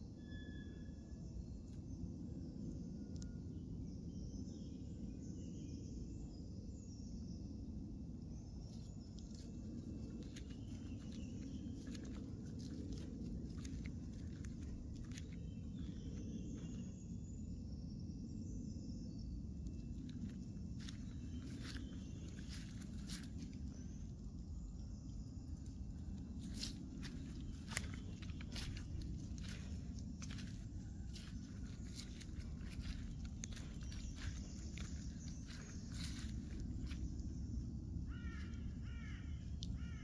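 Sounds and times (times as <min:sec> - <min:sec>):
low outdoor rumble: 0:08.2 - 0:40.0
footsteps through dry leaves: 0:09.3 - 0:16.8, 0:20.1 - 0:23.9, 0:26.2 - 0:37.3.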